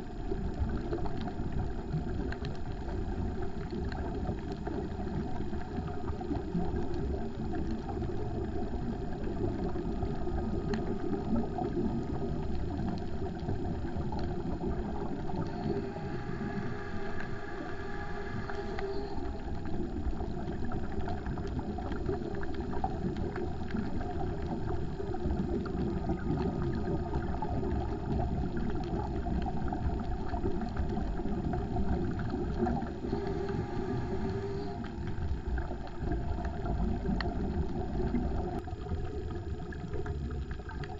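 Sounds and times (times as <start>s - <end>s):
muffled underwater rumble: 0.0s - 40.9s.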